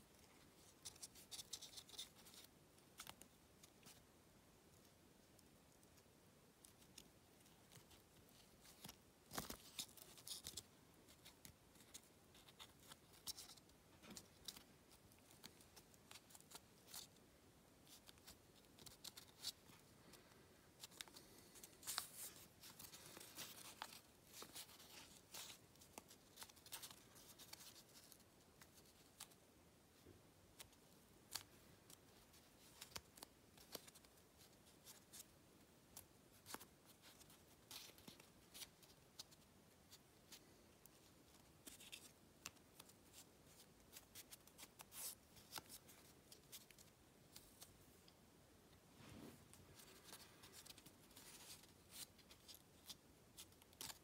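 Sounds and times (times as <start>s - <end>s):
paper rustling and crackling: 17.9s - 29.4s.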